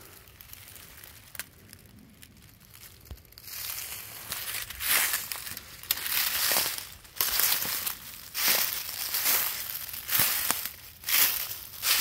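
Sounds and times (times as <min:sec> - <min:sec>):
faint twigs snapping: 0:00.3 - 0:01.9, 0:02.6 - 0:12.0
footsteps crunching through brush: 0:02.7 - 0:12.0.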